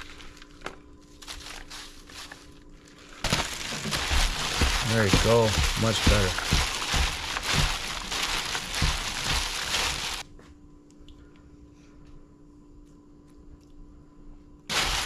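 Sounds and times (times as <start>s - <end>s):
faint steady hum: 0.0s - 15.0s
hands squishing food in a bowl: 3.3s - 10.2s.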